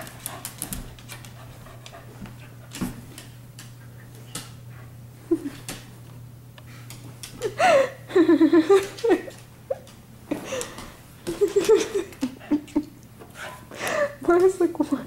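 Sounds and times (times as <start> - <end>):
light clicks and knocks on floor: 0.0 - 4.6.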